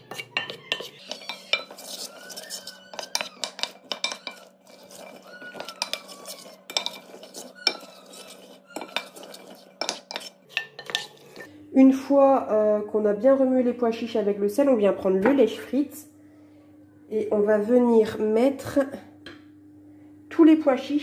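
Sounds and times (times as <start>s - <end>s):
spoon and chickpeas against glass: 0.0s - 11.5s.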